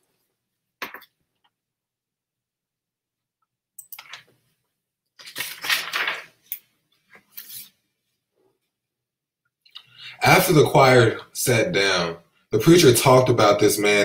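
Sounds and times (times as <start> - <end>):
book page turning: 5.2 - 7.8.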